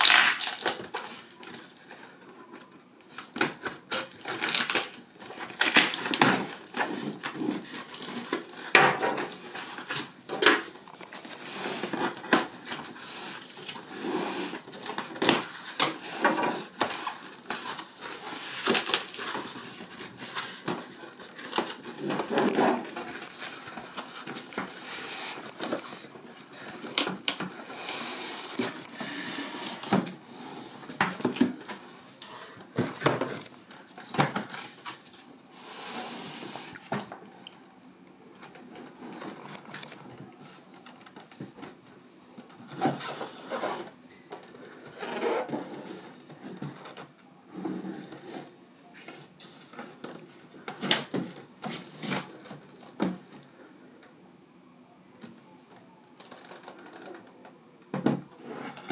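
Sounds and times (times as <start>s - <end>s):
cardboard and foam rustling: 0.0s - 37.1s.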